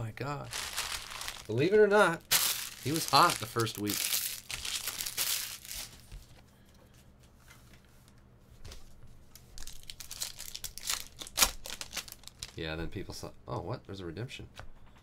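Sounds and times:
foil wrapper crinkling and tearing: 0.4s - 6.2s, 9.5s - 12.7s.

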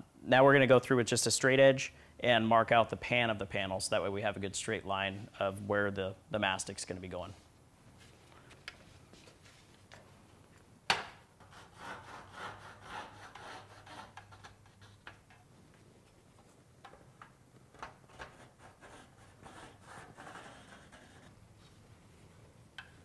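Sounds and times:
marker rubbing on metal: 11.4s - 15.3s, 18.1s - 21.4s.

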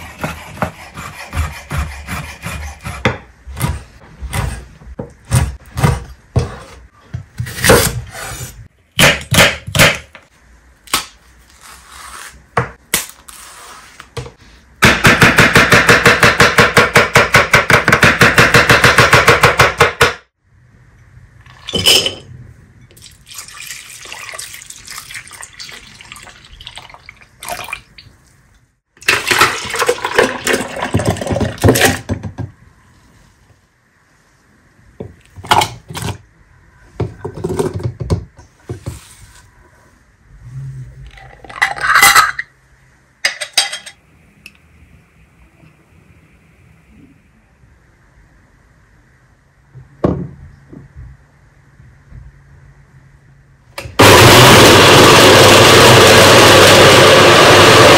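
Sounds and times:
clatter of kitchen things: 37.0s - 38.2s, 41.1s - 42.5s, 43.2s - 44.0s.

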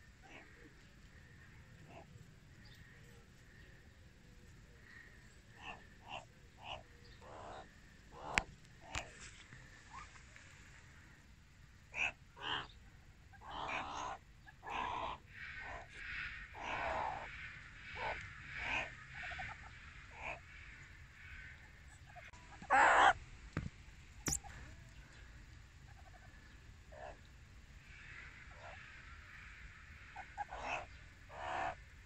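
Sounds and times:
harsh animal calls: 11.9s - 12.7s, 13.4s - 17.3s, 27.9s - 31.8s.

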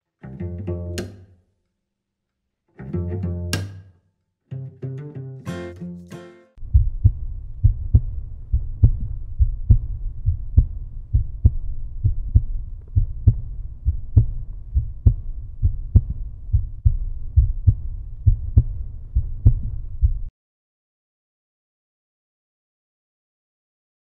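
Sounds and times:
deep rhythmic bass thumping: 6.6s - 20.3s.

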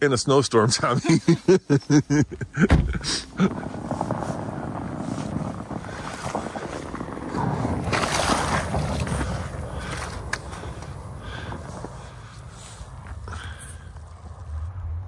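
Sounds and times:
tires crunching through snow: 0.3s - 15.0s
wind noise on microphone: 2.3s - 15.0s
thump: 2.6s - 3.1s.

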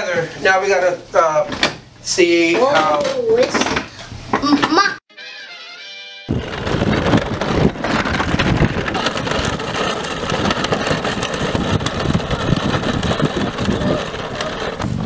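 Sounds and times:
kart wheels rolling on gravelly asphalt: 6.3s - 15.0s.

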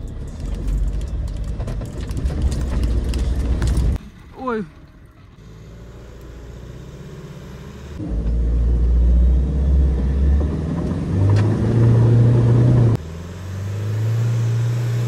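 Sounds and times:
engine revving hard: 6.9s - 15.0s.

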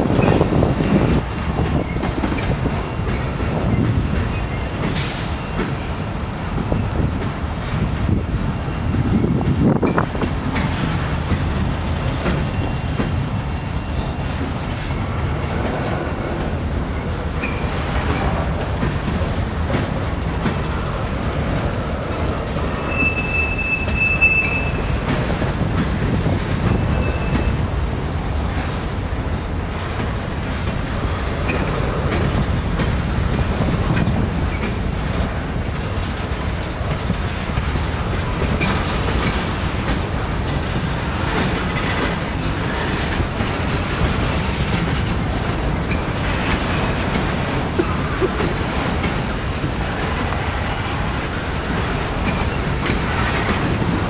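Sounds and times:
high-pitched wheel squeal: 22.8s - 25.0s, 26.7s - 27.6s.

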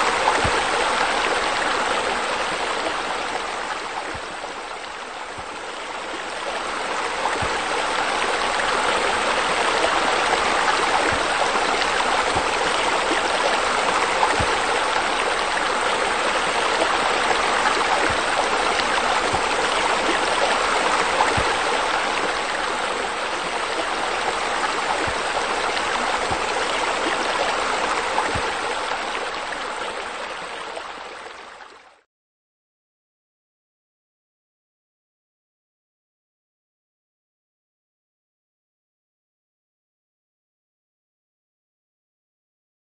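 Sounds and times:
water jets splashing into pool: 0.0s - 31.6s.

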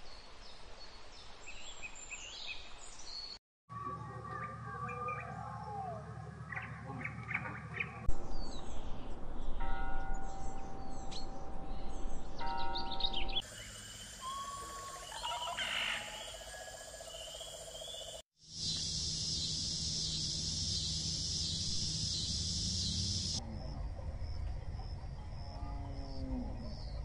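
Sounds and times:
birds chirping and whistling: 4.0s - 23.4s.

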